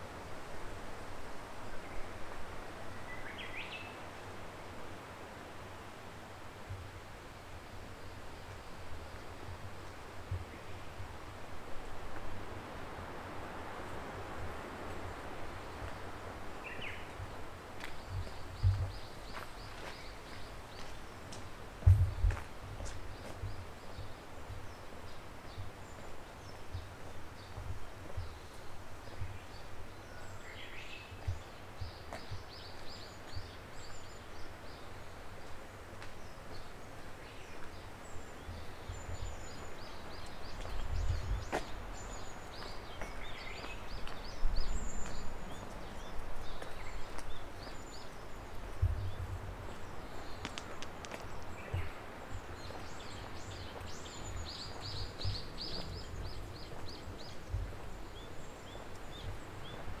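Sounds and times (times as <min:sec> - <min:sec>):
outdoor background hiss: 0:00.0 - 1:00.0
small birds chirping: 0:14.6 - 1:00.0
low thuds: 0:21.8 - 0:23.6.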